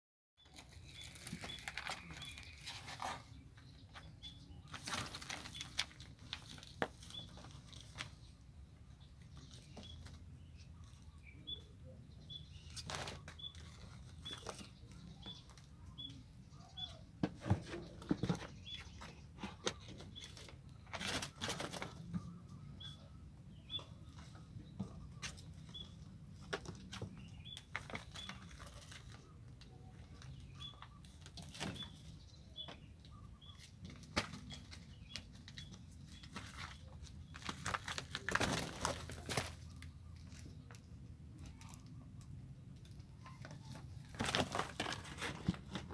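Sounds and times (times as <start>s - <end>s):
bird chirping: 0.4s - 44.1s
kittens scrabbling and scratching: 17.3s - 22.3s.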